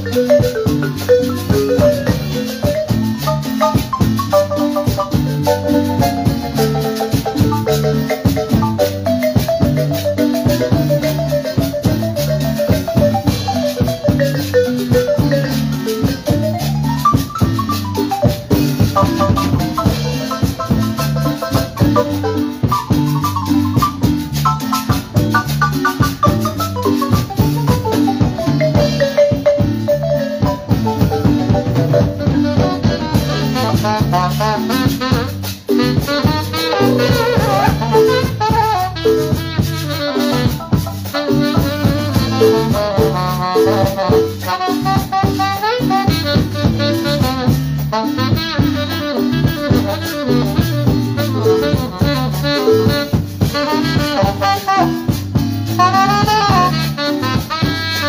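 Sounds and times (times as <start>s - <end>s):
drum kit: 0.0s - 58.0s
electric bass: 0.0s - 58.0s
marimba mallet notes: 0.0s - 58.0s
scraped metal guiro: 33.2s - 46.1s.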